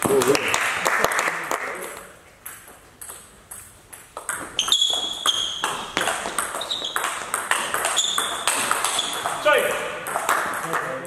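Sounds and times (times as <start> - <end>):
table tennis ball clicks: 2.5 - 9.4.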